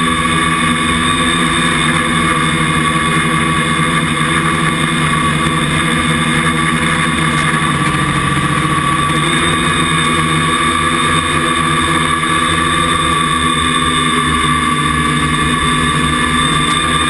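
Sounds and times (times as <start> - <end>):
drone propellers whining: 0.0 - 17.0.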